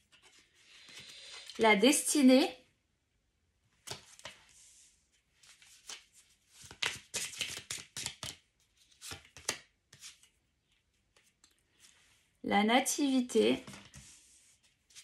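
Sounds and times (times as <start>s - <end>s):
cards being shuffled: 5.4s - 10.4s.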